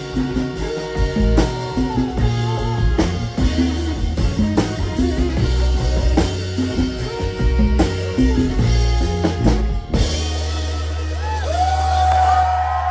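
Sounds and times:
drum kit hits: 0:00.0 - 0:12.7
live soul band playing: 0:00.0 - 0:12.9.

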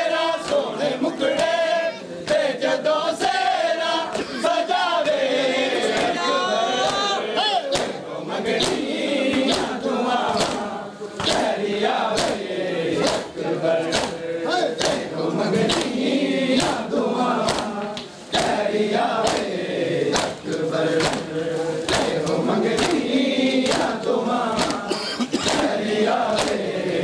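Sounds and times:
men chanting together: 0:00.0 - 0:27.0
hand slaps on chest: 0:07.7 - 0:08.0, 0:10.4 - 0:10.6, 0:12.2 - 0:12.4, 0:13.9 - 0:14.2, 0:17.5 - 0:18.6, 0:19.2 - 0:19.5, 0:20.2 - 0:20.4, 0:21.0 - 0:21.3, 0:23.6 - 0:24.0, 0:24.6 - 0:24.8, 0:26.4 - 0:26.6.

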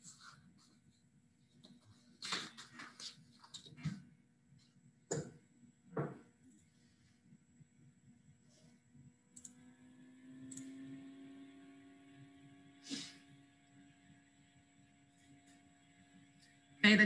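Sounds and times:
faint steady hum: 0:00.0 - 0:17.0
small clicks: 0:09.3 - 0:09.6, 0:10.5 - 0:10.7
short puff of noise: 0:12.8 - 0:13.3.

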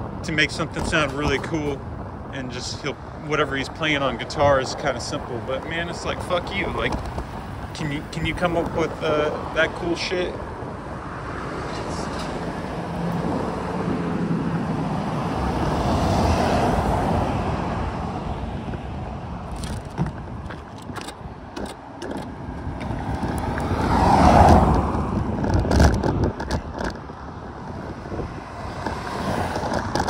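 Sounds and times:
cars passing: 0:00.0 - 0:30.0
light clicks and rattles: 0:19.5 - 0:23.7.

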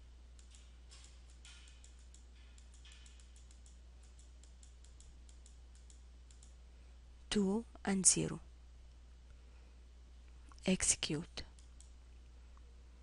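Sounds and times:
computer mouse clicks: 0:00.4 - 0:06.6, 0:11.4 - 0:11.9.

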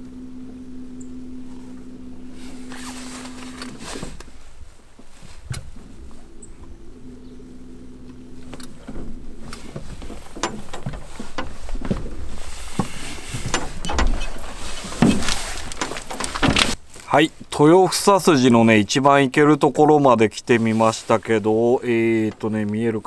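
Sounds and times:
faint low hum: 0:00.0 - 0:18.7
microphone handling noise: 0:00.9 - 0:17.5.

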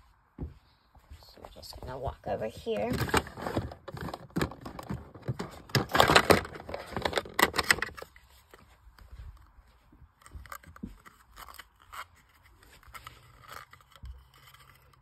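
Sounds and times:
plastic drawer rattling: 0:02.6 - 0:08.1.

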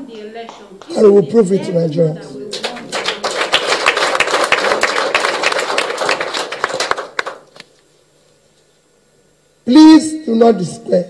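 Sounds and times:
hands clapping: 0:00.1 - 0:01.0, 0:02.5 - 0:07.8.

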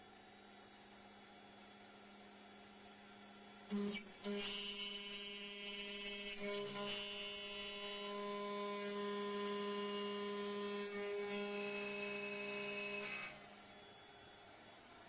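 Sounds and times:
router spindle whining: 0:03.7 - 0:14.8.

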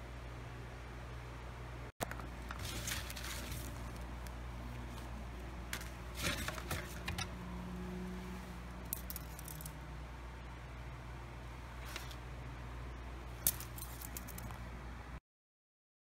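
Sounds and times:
rummaging in cardboard box: 0:02.5 - 0:04.1, 0:05.8 - 0:07.1.

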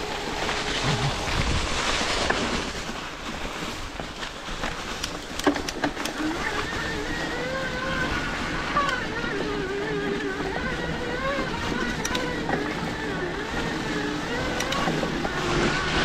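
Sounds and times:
tyre and wind noise: 0:00.0 - 0:16.0
thin whining tone: 0:06.1 - 0:16.0.

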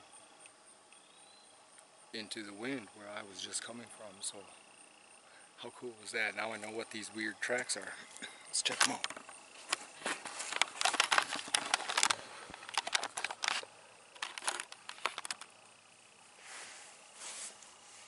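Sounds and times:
footsteps crunching over dry leaves: 0:08.6 - 0:15.0
soft brushing rustle: 0:09.3 - 0:12.3, 0:16.3 - 0:18.0.

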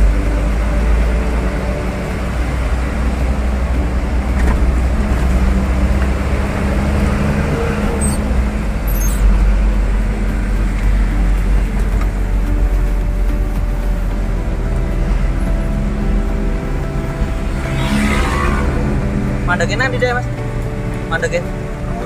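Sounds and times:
engine and road rumble: 0:00.0 - 0:22.0.

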